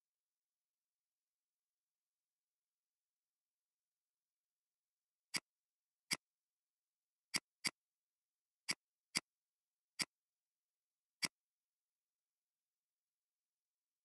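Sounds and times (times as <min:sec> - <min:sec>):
computer mouse clicks: 0:07.3 - 0:07.8, 0:08.7 - 0:09.4, 0:10.0 - 0:10.2, 0:11.2 - 0:11.4.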